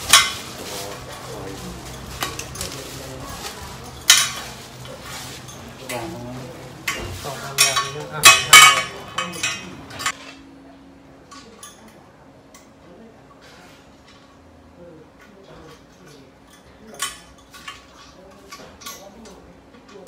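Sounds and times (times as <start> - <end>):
plastic wrapping crinkling: 0.0 - 7.8
steel tubes clanking: 6.8 - 10.4.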